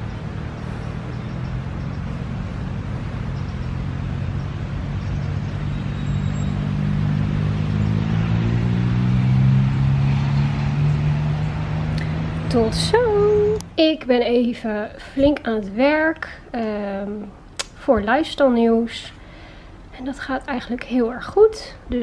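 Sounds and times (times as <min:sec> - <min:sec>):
vehicle engine running: 0:00.0 - 0:14.7.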